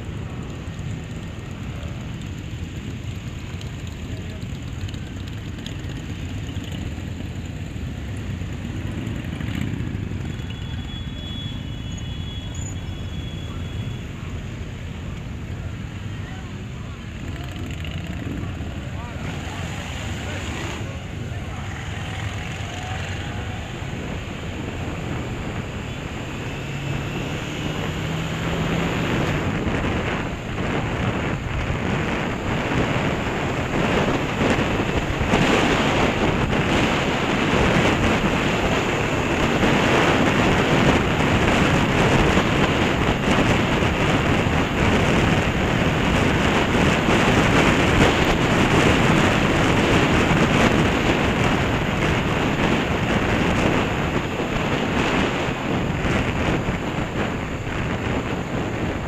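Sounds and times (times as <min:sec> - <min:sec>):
wind rushing over microphone: 0:14.2 - 0:59.0.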